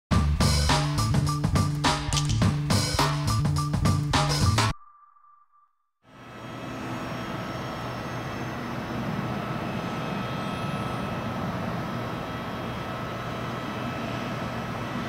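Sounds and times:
jet engines whining: 6.2 - 15.0.

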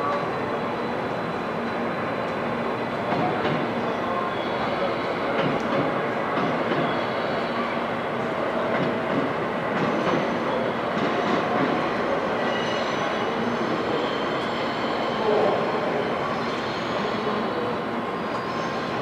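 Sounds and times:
faint wheel squeal: 16.1 - 18.9.

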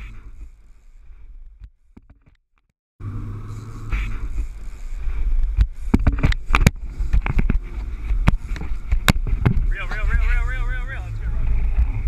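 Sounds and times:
boat engine rumble: 3.0 - 12.0
wind on microphone: 3.5 - 12.0
sharp knocks and thumps: 5.6 - 9.7.

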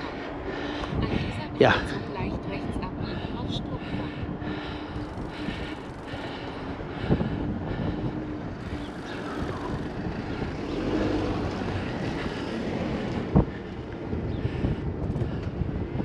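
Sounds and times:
bicycle road noise: 0.0 - 16.0
wind across microphone: 0.0 - 16.0.

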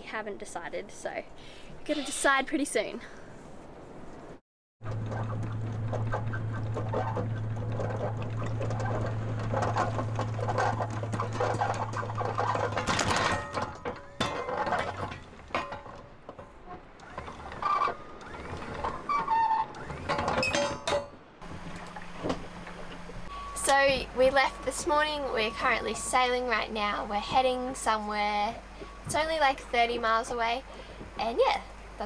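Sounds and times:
windlass motor hum: 4.8 - 32.0
clicks and knocks: 4.9 - 23.8.

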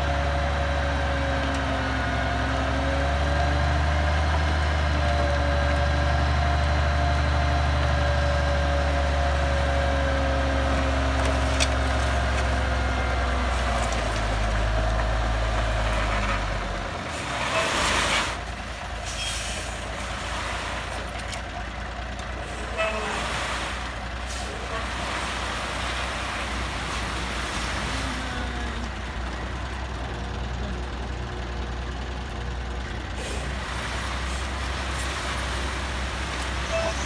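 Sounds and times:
diesel engine running: 0.0 - 37.0.

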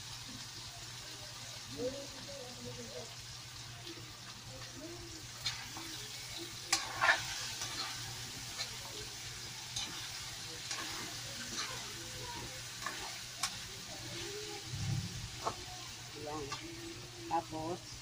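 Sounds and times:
chicken sizzling in a wok: 0.0 - 18.0
metal spatula scraping pan: 6.7 - 8.7, 9.8 - 13.5.

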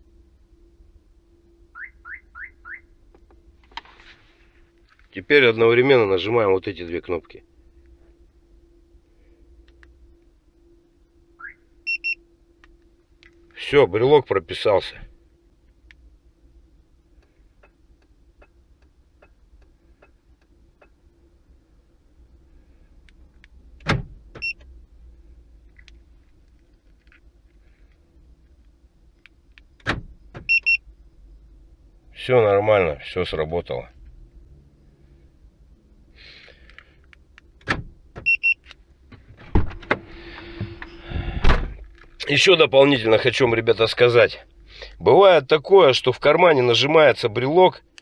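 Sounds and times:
short electronic car alarm beeps: 1.7 - 2.9, 11.4 - 12.2, 24.4 - 24.6, 30.5 - 30.8, 38.2 - 38.6
car door locks thunk: 23.8 - 24.4, 29.8 - 30.5, 37.6 - 38.3, 39.1 - 40.8
sharp clicks and thunks: 29.5 - 30.5, 37.4 - 42.2.

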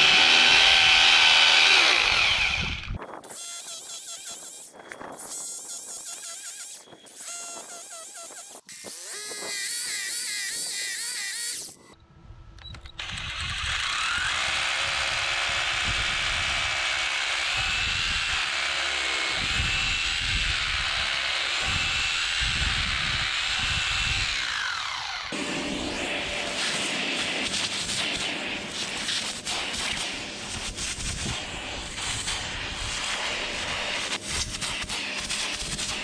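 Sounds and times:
hammer drill boring into concrete: 0.0 - 12.0, 13.0 - 25.4.

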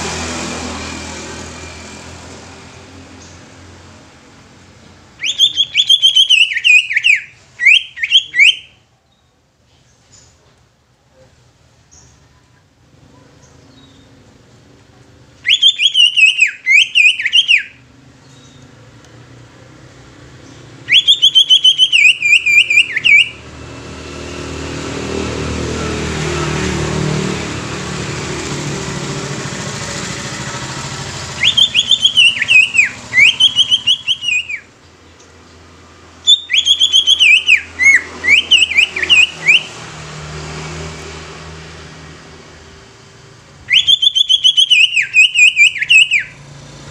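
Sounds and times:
passing motor vehicle: 0.0 - 8.6, 11.9 - 46.9
bird singing whistled song: 5.2 - 9.3, 15.4 - 18.6, 20.4 - 23.4, 31.4 - 34.7, 36.2 - 39.8, 43.7 - 46.4.

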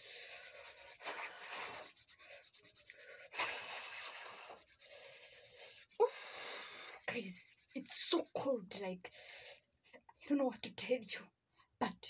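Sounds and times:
palms rubbing together: 0.0 - 8.8.

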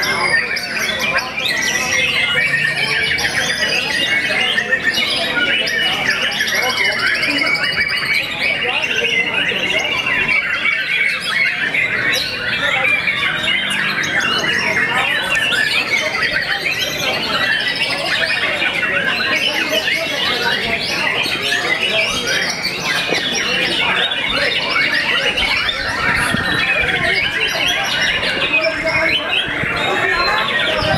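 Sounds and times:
birds singing whistled trills: 0.0 - 30.9.

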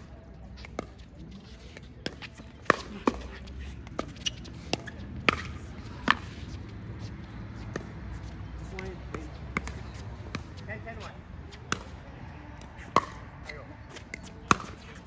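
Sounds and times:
ball bouncing on hard court: 8.7 - 10.6, 12.9 - 14.9.

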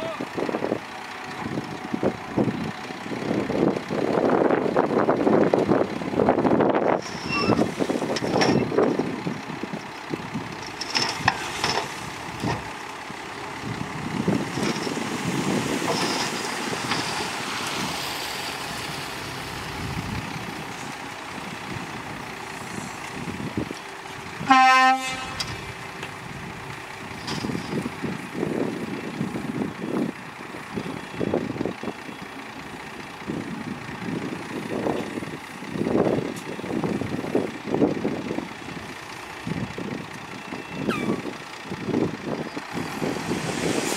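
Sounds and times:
dump truck engine running: 0.0 - 43.9
soil sliding out: 10.7 - 12.8
vehicle horn: 24.4 - 25.7.

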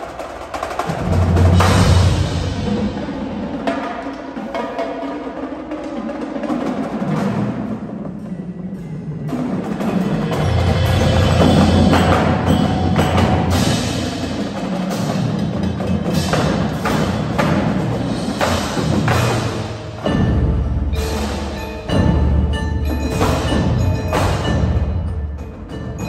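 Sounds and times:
marching drumline: 0.0 - 26.0
mallet keyboards: 9.4 - 26.0.

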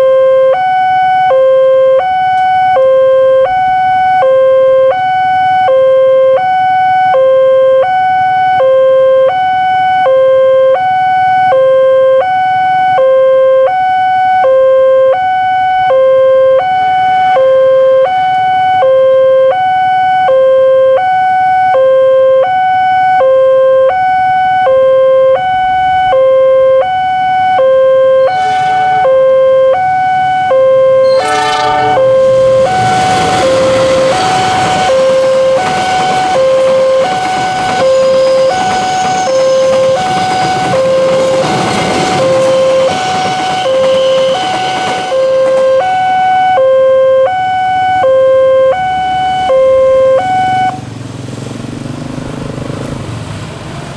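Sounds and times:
level crossing two-tone alarm: 0.0 - 50.8
locomotive horn: 26.1 - 50.8
train arriving: 28.2 - 46.8.

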